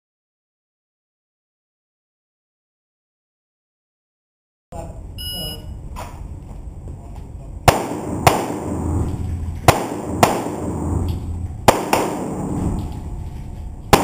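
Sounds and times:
pistol shots echoing: 7.6 - 13.0.

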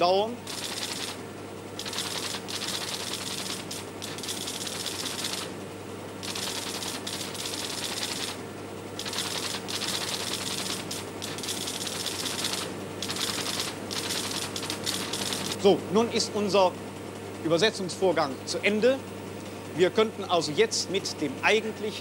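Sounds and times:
line printer hammering: 0.0 - 1.2, 1.8 - 5.6, 6.2 - 8.4, 9.0 - 15.7.

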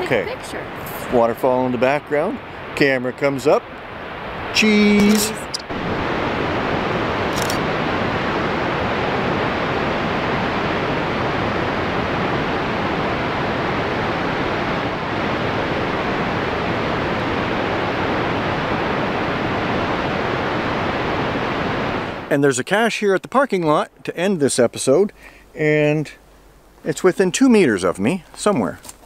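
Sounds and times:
waterfall rushing: 4.3 - 22.2
short high click: 4.6 - 5.7.

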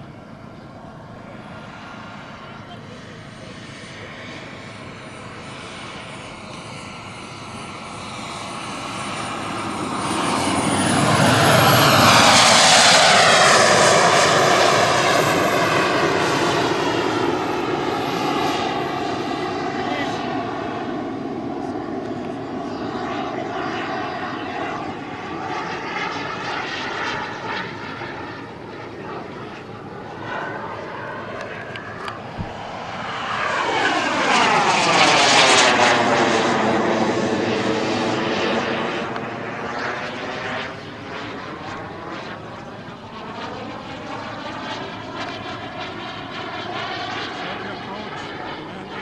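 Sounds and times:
model jet turbine whine: 0.0 - 49.0.

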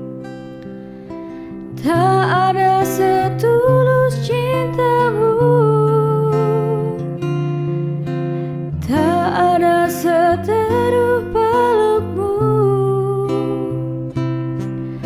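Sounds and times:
guitar accompaniment: 0.0 - 15.0
woman singing wordless melody: 1.7 - 7.4, 8.7 - 15.0.

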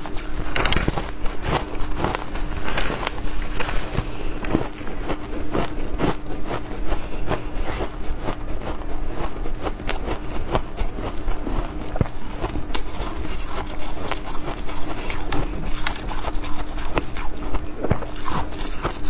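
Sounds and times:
faint steady hum: 0.0 - 19.0
shaved ice crunching: 9.2 - 19.0.

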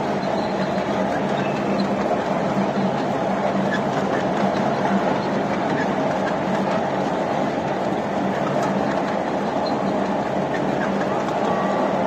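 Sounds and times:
miniature train wheels on rails: 0.0 - 12.0.

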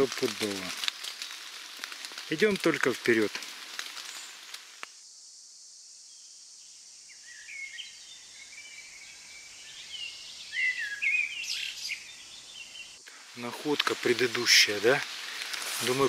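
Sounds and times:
steady high hiss: 0.0 - 16.0
songbird chirping: 6.0 - 16.0.

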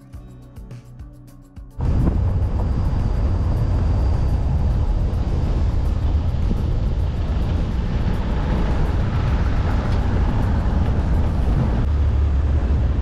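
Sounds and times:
road and wind noise: 1.8 - 13.0
vehicle engine rumble: 1.8 - 13.0.

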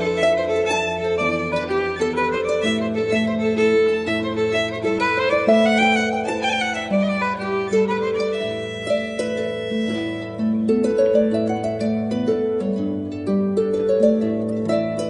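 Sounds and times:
harp melody: 0.0 - 15.0.

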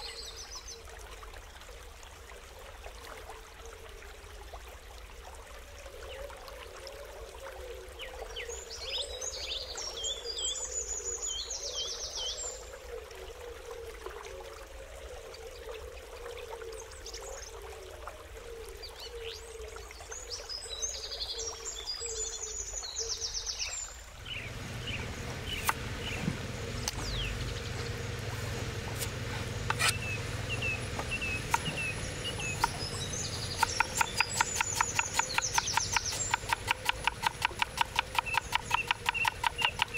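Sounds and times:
bird singing trills: 22.2 - 39.9
rumble: 24.3 - 33.6
sharp clicks: 25.5 - 27.2, 33.5 - 39.9
evenly spaced taps: 33.5 - 39.9.

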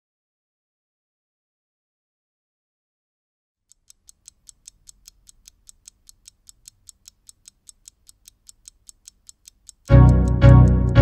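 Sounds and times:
wristwatch ticking: 3.7 - 11.0.

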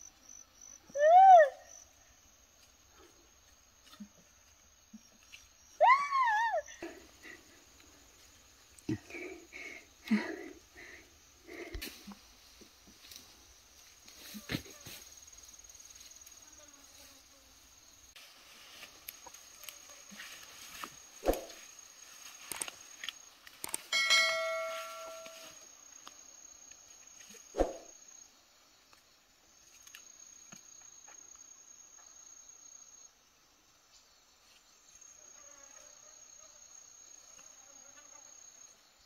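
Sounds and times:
high insect whine: 0.0 - 39.0
stems snapping: 22.4 - 23.9.

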